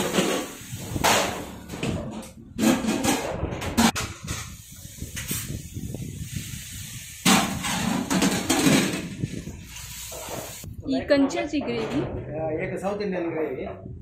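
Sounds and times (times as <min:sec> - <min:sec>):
steady hiss: 0:00.0 - 0:01.6, 0:04.3 - 0:10.7.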